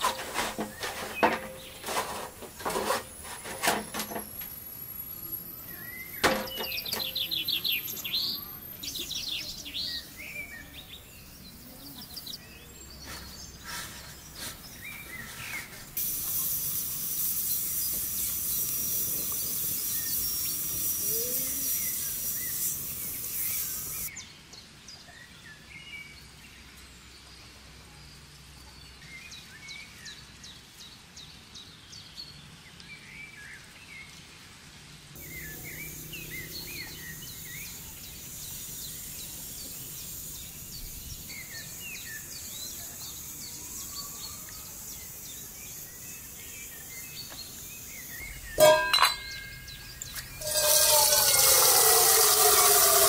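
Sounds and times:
pressure cooker steam hissing: 0.0 - 8.1, 15.8 - 24.1, 35.2 - 46.1, 46.9 - 53.0
birds chirping: 0.0 - 24.2, 35.2 - 53.0
faint whistling tone: 48.3 - 53.0.

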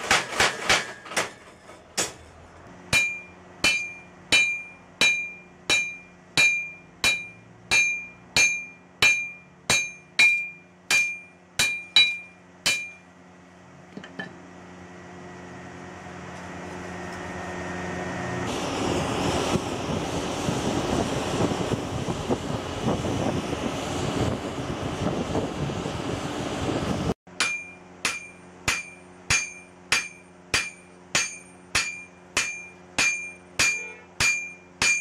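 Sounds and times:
hammer striking steel on anvil: 0.0 - 2.3, 2.9 - 13.1, 27.3 - 35.0
forge fire rushing: 18.5 - 27.1.

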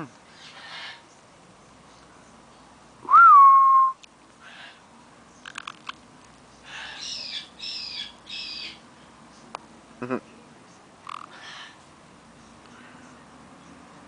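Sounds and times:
parrot harsh chattering calls: 0.4 - 1.0, 6.6 - 8.8, 11.0 - 11.8.

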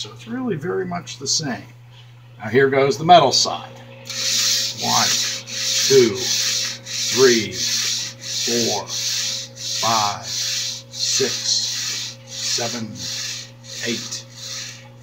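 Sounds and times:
model train wheels rolling on rail: 4.1 - 14.8.

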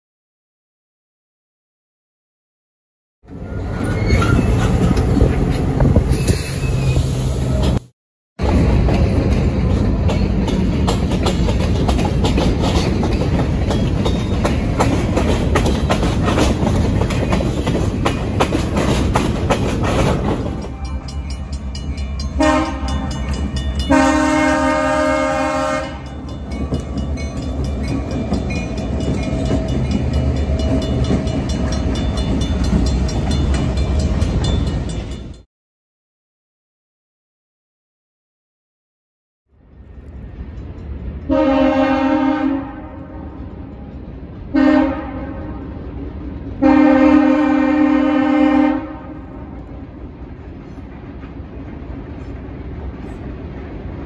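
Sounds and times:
freight cars rumbling and clattering: 3.3 - 24.0, 26.0 - 35.4
crossing bell ringing: 20.3 - 35.5
locomotive air horn: 22.4 - 23.3, 23.9 - 26.1, 41.3 - 43.4, 44.5 - 45.7, 46.6 - 49.5.

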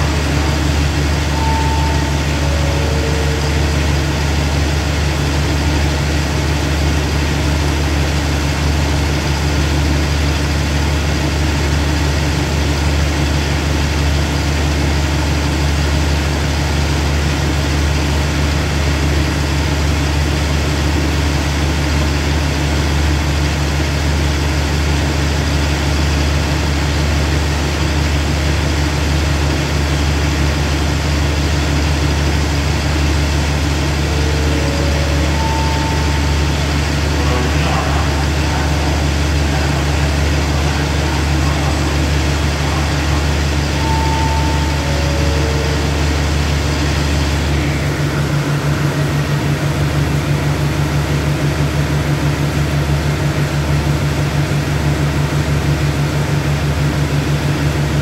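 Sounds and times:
short falling tones: 0.0 - 5.4, 32.2 - 48.0
diesel train engine idling: 0.0 - 58.0.

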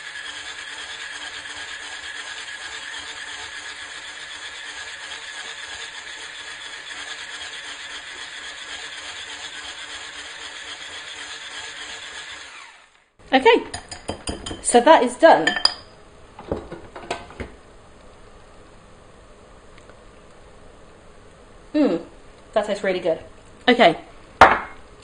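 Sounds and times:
electric hand mixer whining: 0.0 - 13.1.

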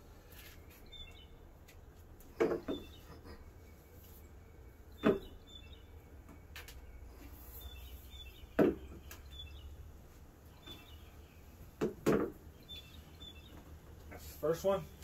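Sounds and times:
faint birds chirping: 0.0 - 15.0
plastic pipe knocking on wooden deck: 11.8 - 12.4.

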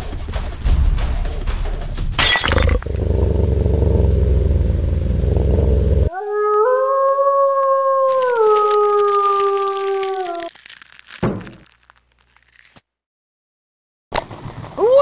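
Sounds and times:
low rumbling: 0.7 - 6.1
wolf howl: 6.0 - 10.5.

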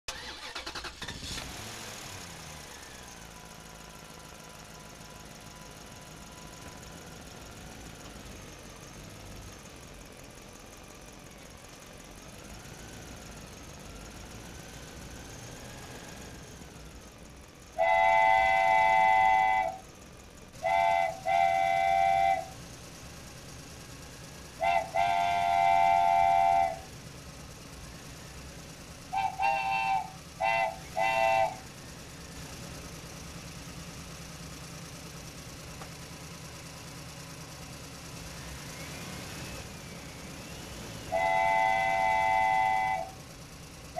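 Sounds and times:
low engine rumble: 0.1 - 43.9
multi-tone horn blasts: 17.8 - 19.8, 20.6 - 22.5, 24.6 - 26.9, 29.1 - 31.6, 41.1 - 43.2.

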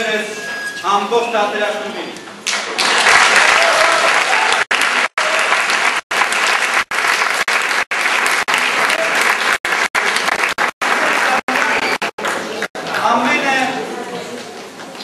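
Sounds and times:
audience applauding: 2.5 - 13.2.

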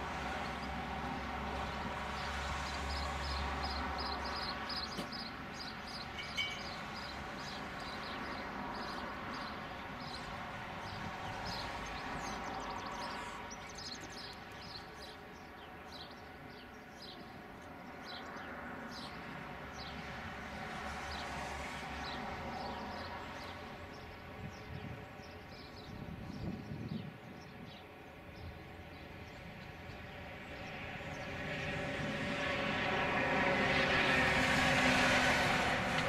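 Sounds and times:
birds chirping: 2.2 - 20.1, 22.0 - 31.8.

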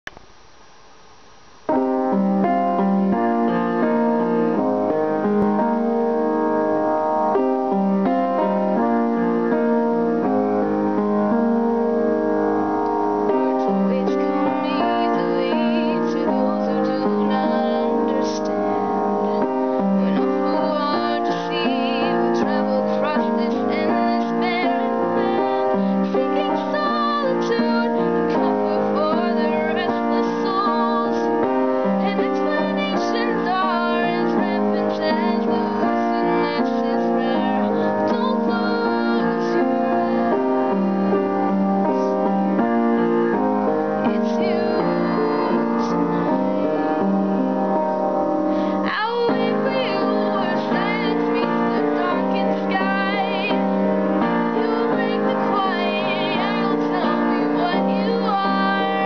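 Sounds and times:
piano chords: 0.0 - 59.0
recording hiss: 0.0 - 59.0
woman singing: 13.2 - 42.3, 43.3 - 47.0, 48.6 - 59.0.

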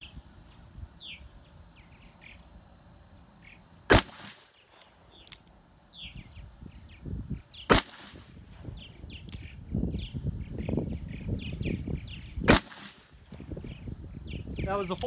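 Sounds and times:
birds chirping: 0.0 - 15.0
revolver shots with echo: 3.9 - 4.4, 7.7 - 8.3, 12.5 - 13.0.

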